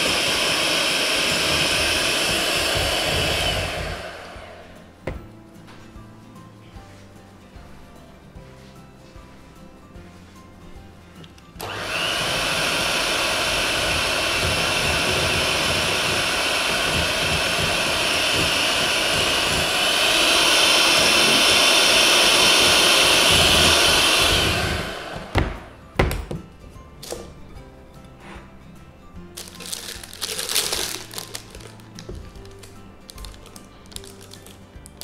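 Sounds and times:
electric hand mixer whining: 0.0s - 4.9s, 11.6s - 25.8s, 29.4s - 33.7s.

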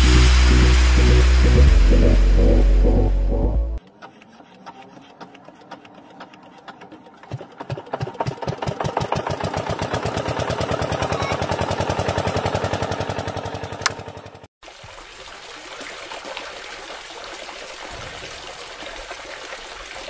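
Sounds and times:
toy engine chugging: 3.8s - 12.6s.

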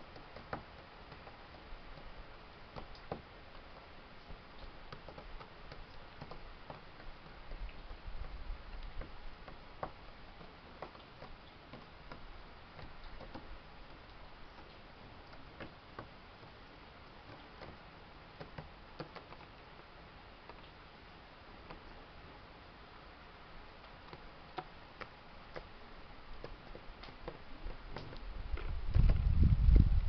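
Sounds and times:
bird beak tapping on wood: 0.1s - 2.1s, 2.7s - 3.6s, 4.3s - 14.7s, 18.4s - 19.5s, 24.0s - 25.7s, 26.4s - 29.2s.

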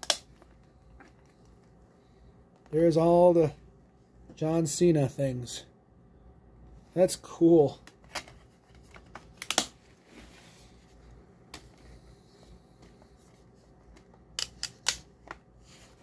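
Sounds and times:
plastic case clicks and snaps: 9.3s - 9.8s.

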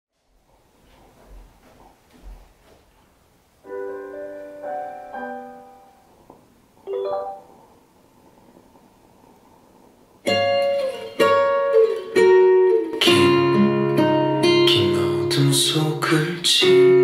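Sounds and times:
electronic piano-like chimes: 3.7s - 6.0s, 6.9s - 7.5s.

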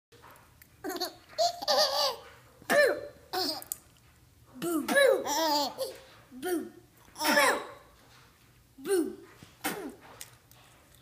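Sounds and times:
baby giggling: 0.8s - 2.3s, 5.0s - 6.0s.

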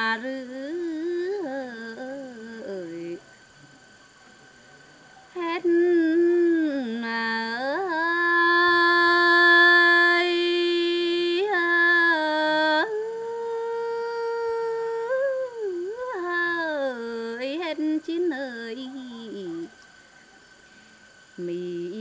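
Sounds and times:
woman singing unaccompanied: 0.0s - 3.3s, 5.3s - 19.8s, 21.3s - 22.0s.

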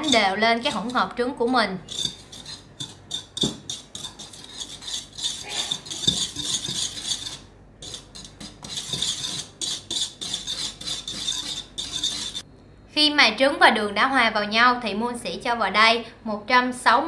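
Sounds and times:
whisk beating in bowl: 0.0s - 12.4s.

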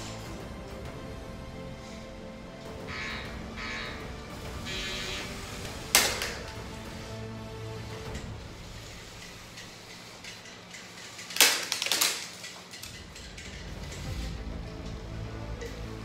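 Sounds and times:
small electric motors humming: 2.7s - 11.4s
spinning weapon striking plastic bricks: 5.9s - 6.6s, 9.2s - 14.0s.

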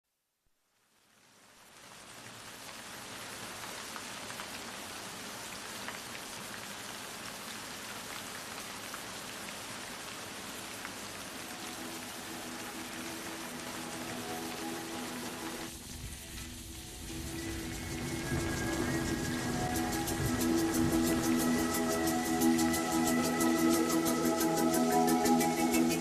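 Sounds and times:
rain hissing: 0.9s - 26.0s
raindrops ticking: 2.6s - 26.0s
sustained music notes: 11.5s - 26.0s.

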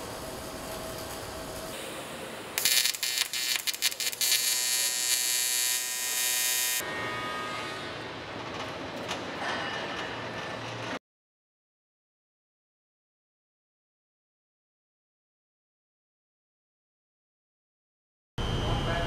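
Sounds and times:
welding arc crackling and buzzing: 0.0s - 6.8s
factory hum: 0.0s - 11.0s, 18.4s - 19.0s.

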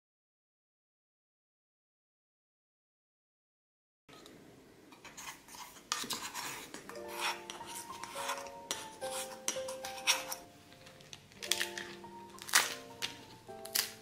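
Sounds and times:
spoon scraping metal cup: 5.0s - 10.5s
soft background music: 6.4s - 14.0s.

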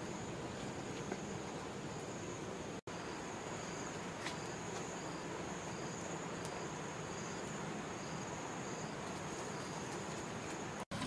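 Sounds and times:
insect chirp: 0.0s - 10.8s
insects droning: 0.0s - 11.0s.

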